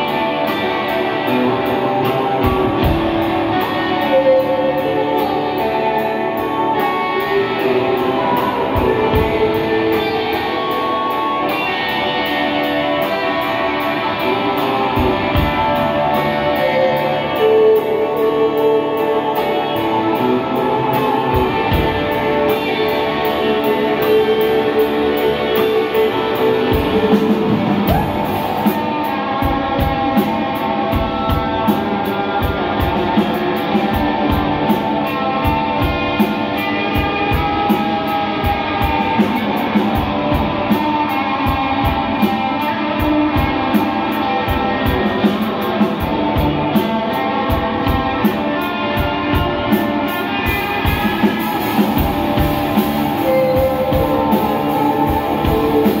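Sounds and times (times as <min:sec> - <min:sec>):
rock band playing live: 0:00.0 - 0:56.0
steady drum beat: 0:00.0 - 0:56.0.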